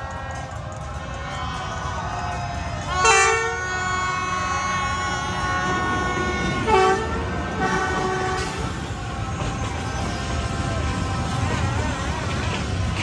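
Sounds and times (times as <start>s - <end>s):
passing train rumble: 0.0s - 13.0s
locomotive horn blasts: 2.9s - 8.8s.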